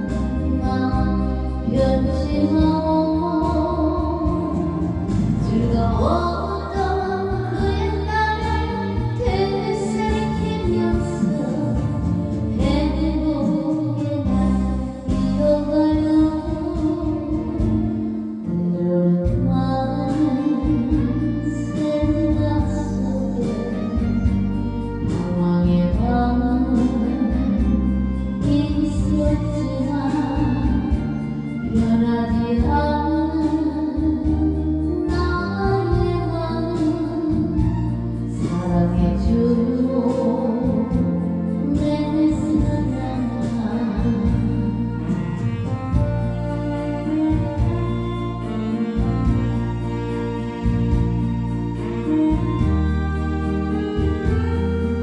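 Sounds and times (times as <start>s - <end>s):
woman singing slow melody: 0.0s - 49.4s
backing track music: 0.0s - 55.0s.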